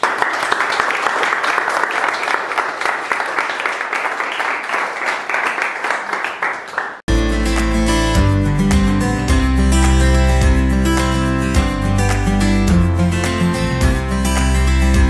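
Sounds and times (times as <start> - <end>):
audience applause: 0.0 - 7.1
acoustic guitar music: 7.1 - 15.0.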